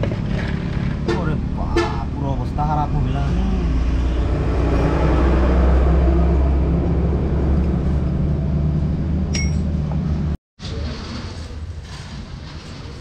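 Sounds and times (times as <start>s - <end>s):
metallic clink: 9.3s - 9.7s.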